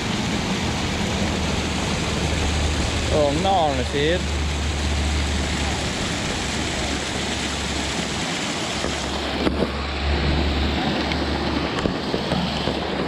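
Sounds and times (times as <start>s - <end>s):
steady rushing noise: 0.0s - 13.0s
wind rumbling on microphone: 5.8s - 13.0s.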